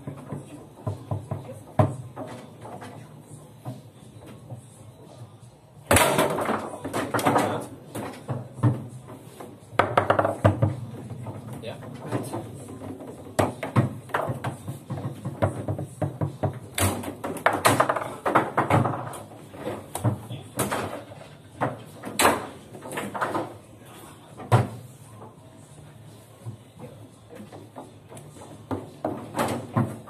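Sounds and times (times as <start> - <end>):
foosball clacks and knocks: 5.9 - 23.6, 27.3 - 30.0.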